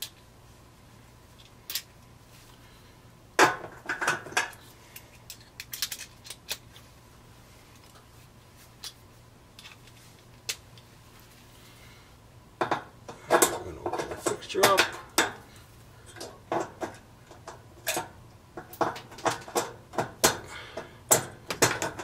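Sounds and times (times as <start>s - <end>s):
metallic clicks and knocks on sheet metal: 3.4s - 4.6s, 12.6s - 15.5s, 16.1s - 22.0s.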